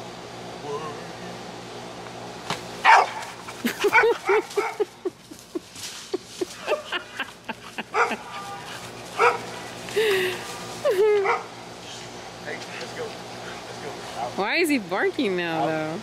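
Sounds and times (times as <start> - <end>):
dog barking and yipping: 2.8 - 5.0, 7.8 - 9.6, 11.2 - 11.5.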